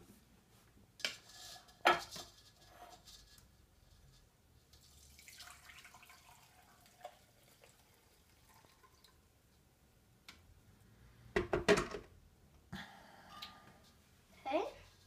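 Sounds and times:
liquid trickling into jug: 4.8 - 9.3.

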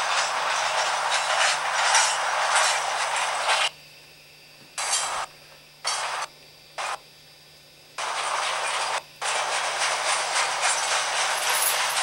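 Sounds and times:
train cars rolling past: 0.0 - 3.7, 8.0 - 12.0
faint steady hum: 3.7 - 8.1.

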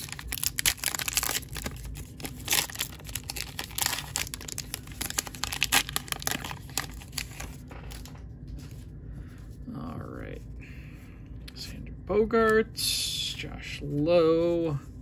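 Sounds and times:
wrapper crinkling and tearing: 0.0 - 8.2.

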